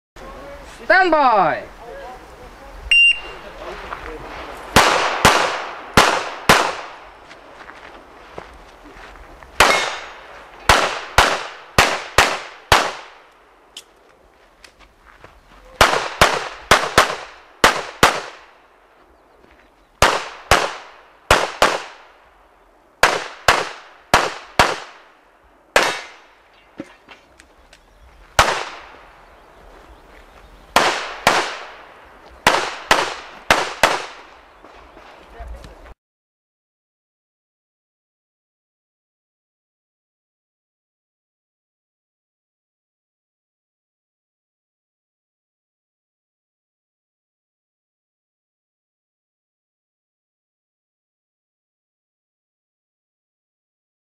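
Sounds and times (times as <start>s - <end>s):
pistol shots echoing: 4.7s - 7.1s, 9.6s - 13.3s, 15.8s - 18.6s, 20.0s - 22.1s, 23.0s - 25.1s, 25.8s - 26.4s, 28.4s - 29.2s, 30.8s - 34.4s.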